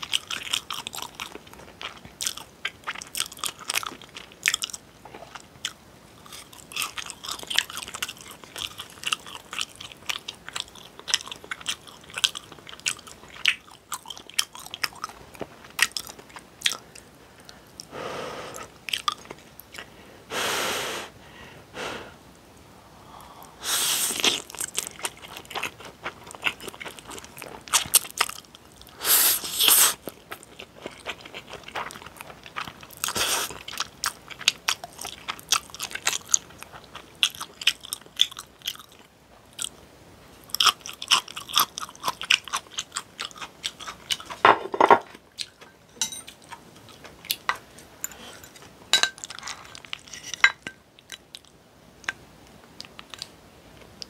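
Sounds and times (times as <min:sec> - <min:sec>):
wet crunchy chewing: 0:00.0 - 0:17.6, 0:18.9 - 0:19.9, 0:24.1 - 0:29.0, 0:29.6 - 0:39.8, 0:40.4 - 0:44.4.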